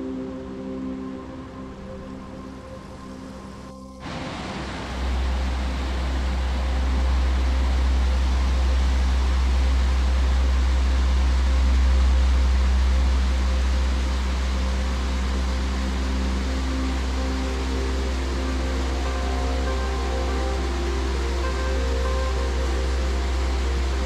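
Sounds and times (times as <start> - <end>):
river whitewater rushing: 4.0 - 24.0.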